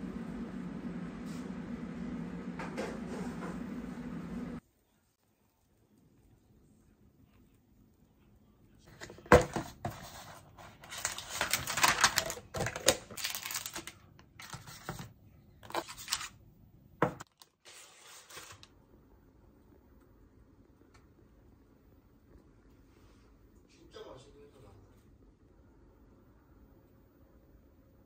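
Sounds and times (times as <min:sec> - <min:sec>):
paper liner rustling and scraping: 0:08.9 - 0:16.4, 0:17.2 - 0:18.7.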